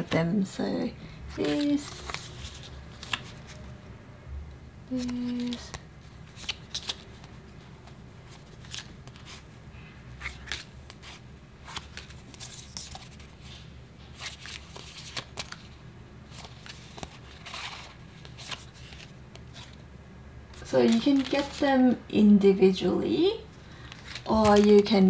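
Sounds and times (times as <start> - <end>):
sticker cards flicking and sliding: 24.0 - 25.0.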